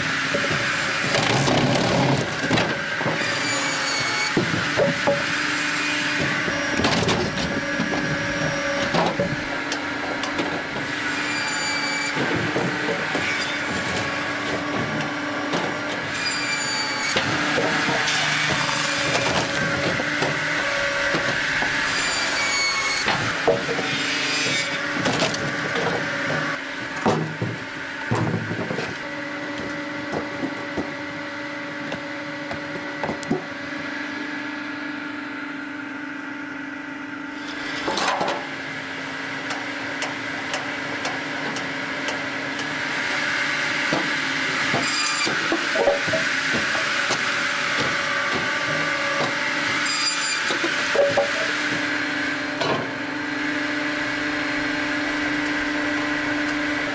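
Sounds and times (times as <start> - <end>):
saw whining through logs: 0.0 - 56.9
machinery motor hum: 6.0 - 11.1.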